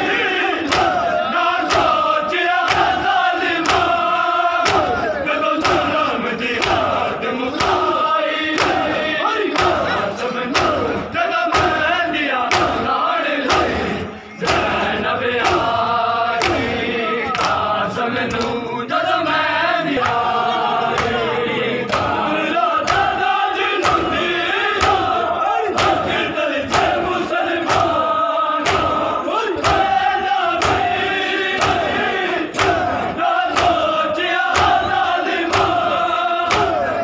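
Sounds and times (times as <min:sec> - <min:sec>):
men chanting a lament: 0:00.0 - 0:37.0
hands beating chests: 0:00.6 - 0:02.0, 0:02.6 - 0:17.7, 0:22.8 - 0:28.0, 0:28.6 - 0:33.9, 0:34.5 - 0:37.0.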